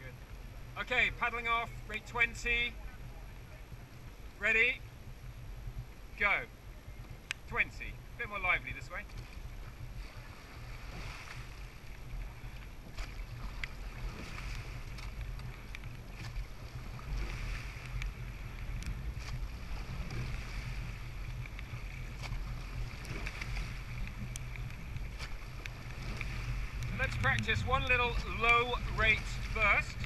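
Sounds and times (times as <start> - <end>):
water rushing past hull: 0.0 - 30.0
oar blades swishing through water: 9.0 - 30.0
wind noise on microphone: 9.4 - 30.0
light clicks: 14.9 - 16.0, 17.8 - 19.0, 23.1 - 28.6.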